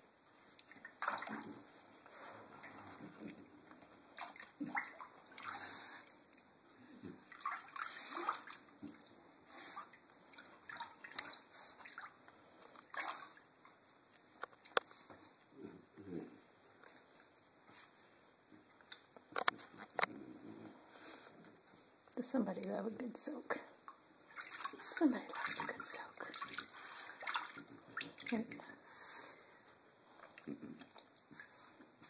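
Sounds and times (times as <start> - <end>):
bathwater sloshing and splashing: 0.0 - 15.5, 16.7 - 20.0, 21.5 - 32.0.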